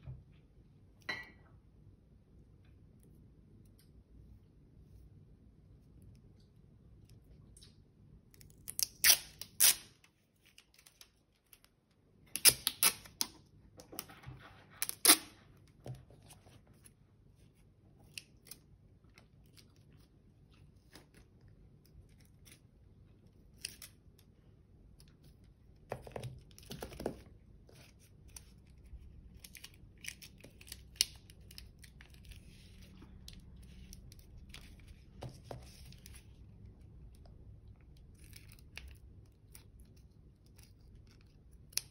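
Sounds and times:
sticky tape ripped off roll: 0:08.7 - 0:10.0.

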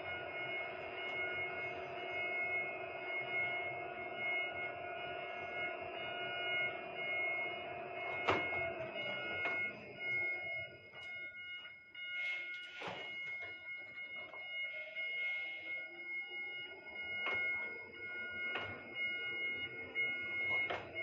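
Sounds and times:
crane motor whine: 0:00.0 - 0:21.0
high buzzing warning tones: 0:00.0 - 0:21.0.

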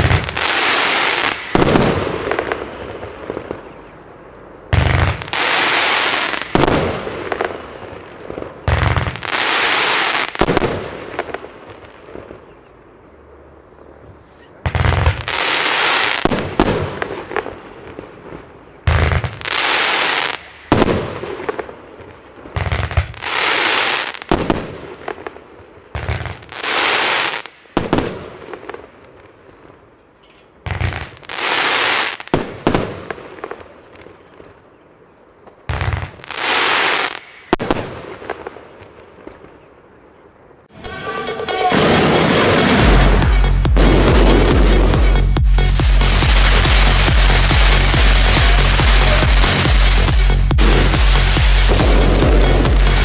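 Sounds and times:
low thump of launches: 0:41.7 - 0:53.0
firework battery volleys: 0:45.6 - 0:53.0.

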